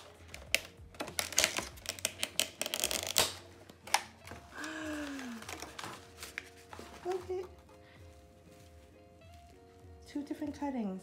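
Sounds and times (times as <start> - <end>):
plastic case crackling and clicking: 0.0 - 4.6, 5.4 - 7.7.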